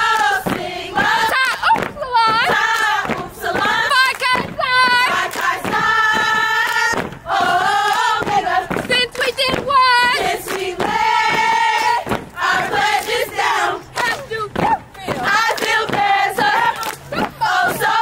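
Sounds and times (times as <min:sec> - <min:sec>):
women chanting in unison: 0:00.0 - 0:18.0.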